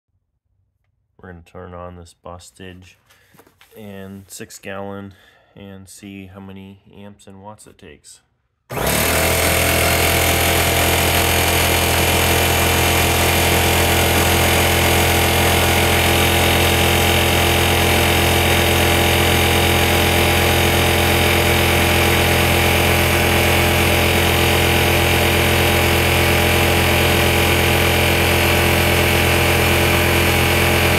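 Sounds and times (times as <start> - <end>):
air compressor running: 8.7 - 30.9.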